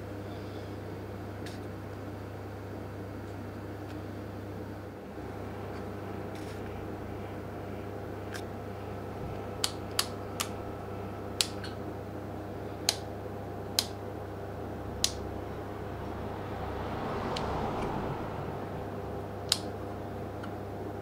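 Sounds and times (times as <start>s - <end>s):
low hum: 14.7s - 20.2s.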